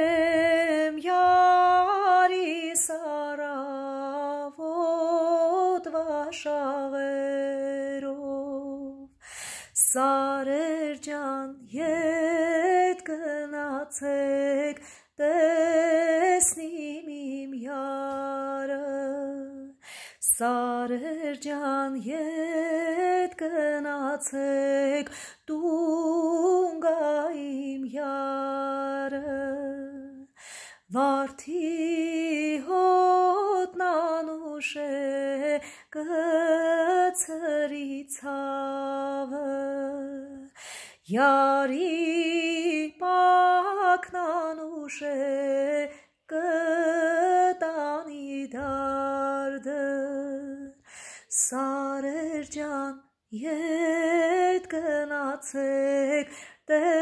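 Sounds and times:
woman singing unaccompanied: 0.0s - 57.0s
singer breathing: 9.1s - 9.8s, 14.8s - 15.1s, 19.8s - 20.2s, 25.1s - 25.4s, 30.3s - 30.9s, 35.6s - 35.9s, 40.5s - 41.0s, 50.8s - 51.3s, 56.3s - 56.6s.

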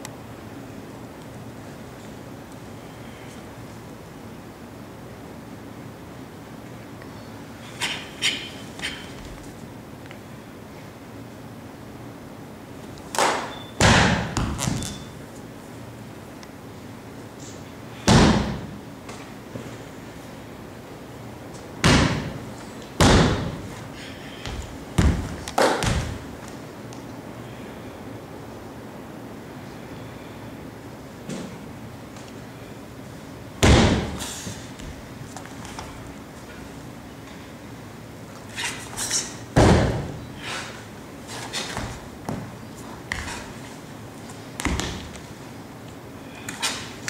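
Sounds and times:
heavy foot stamps on floor: 13.8s - 15.0s, 23.0s - 26.5s, 44.6s - 45.2s
foot stomps on hard floor: 24.4s - 26.2s, 44.6s - 45.2s.

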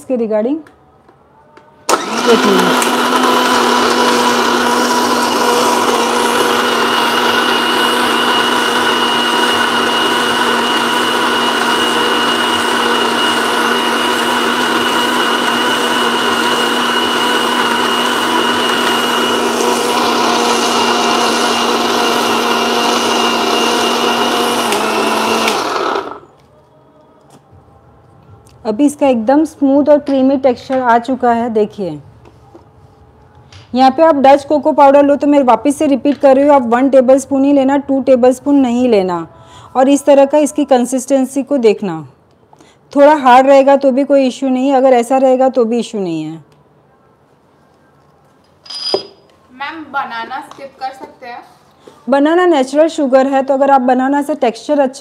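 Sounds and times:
mixer grinder whining: 1.9s - 26.3s.

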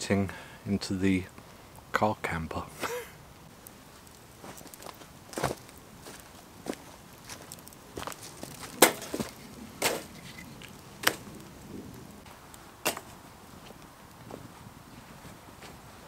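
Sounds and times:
wood fire crackling and popping: 0.3s - 16.0s.

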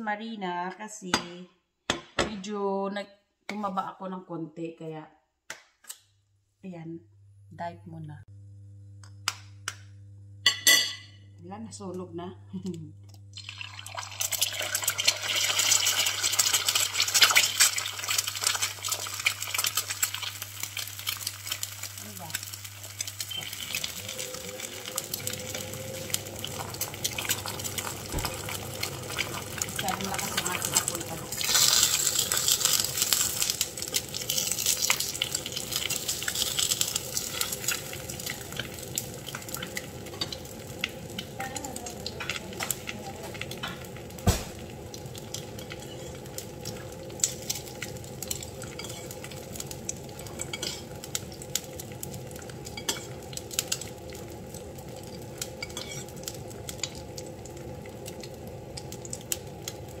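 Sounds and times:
egg sizzling in oil: 13.3s - 60.0s.

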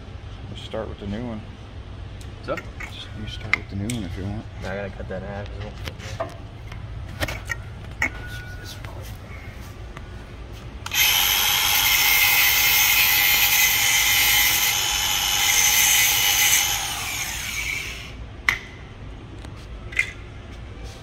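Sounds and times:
angle grinder whining: 10.9s - 18.2s.

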